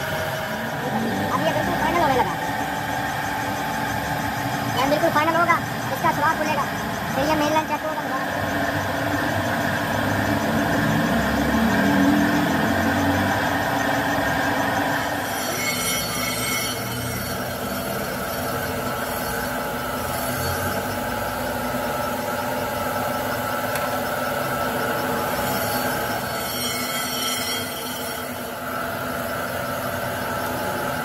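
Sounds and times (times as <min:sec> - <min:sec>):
metal lathe droning: 0:00.0 - 0:31.0
cutting tool scraping metal: 0:15.2 - 0:21.0, 0:25.2 - 0:28.7.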